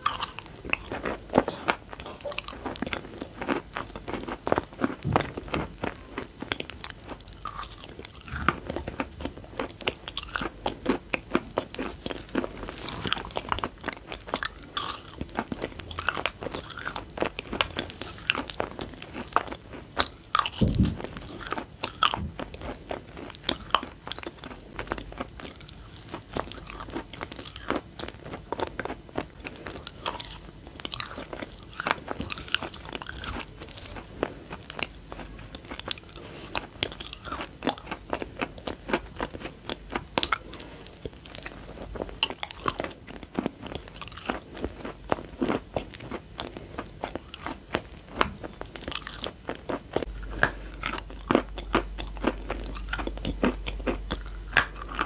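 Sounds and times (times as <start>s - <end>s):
heavy thump: 20.6s - 21.1s.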